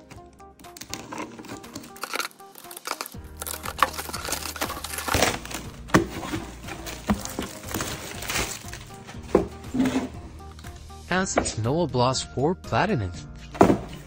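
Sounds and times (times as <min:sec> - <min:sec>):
background music: 0:00.0 - 0:14.0
packaging crinkling and rustling: 0:00.8 - 0:09.0.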